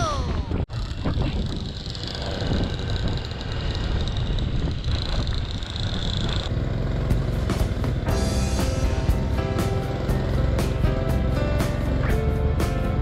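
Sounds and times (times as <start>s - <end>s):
wind rushing over microphone: 0.0s - 9.6s
small vehicle engines running: 0.7s - 13.0s.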